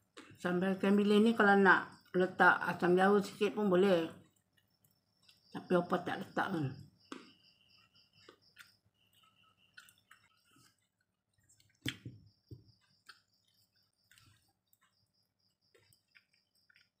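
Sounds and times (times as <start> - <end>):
quiet chewing: 0.0 - 0.4, 3.3 - 5.6, 6.8 - 17.0.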